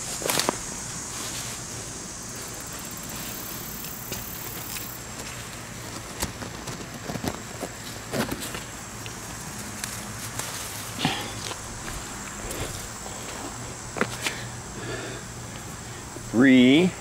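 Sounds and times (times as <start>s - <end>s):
plant leaves rustling: 0.0s - 14.6s
steady high hiss: 0.0s - 17.0s.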